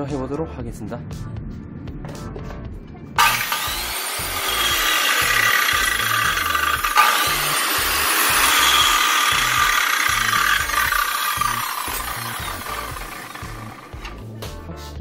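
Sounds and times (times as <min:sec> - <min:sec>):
circular saw running: 0:03.2 - 0:14.3.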